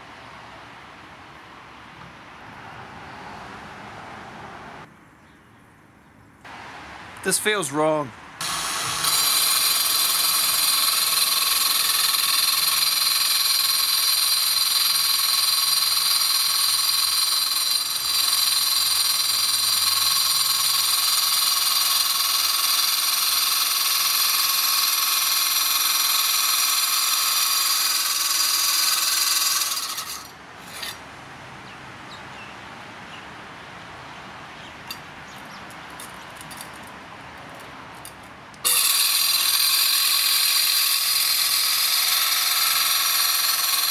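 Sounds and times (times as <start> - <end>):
glass cutter saw whining: 8.4 - 31.0, 38.6 - 43.9.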